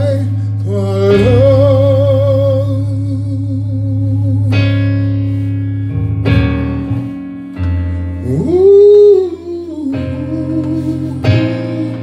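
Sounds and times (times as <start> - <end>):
man singing a long note: 0.0 - 5.1, 8.2 - 12.0
keyboard chords: 0.0 - 12.0.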